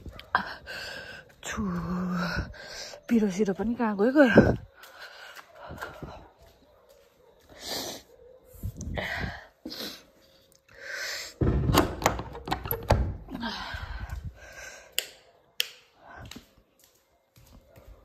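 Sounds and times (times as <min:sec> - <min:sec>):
person breathing sounds: 0:00.4 - 0:01.4, 0:08.8 - 0:11.4, 0:13.4 - 0:15.0.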